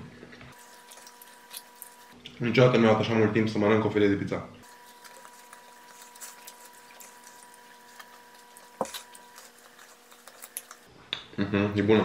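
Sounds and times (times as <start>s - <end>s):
faint electrical hum: 0.0s - 12.0s
person chewing: 0.5s - 2.4s, 4.6s - 10.9s.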